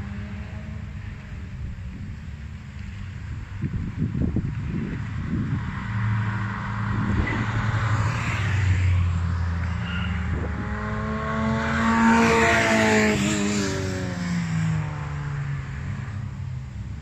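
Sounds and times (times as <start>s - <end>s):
wind buffeting microphone: 3.0s - 8.6s
small car engine passing near: 4.6s - 16.4s
racing cars driving past: 4.6s - 17.0s.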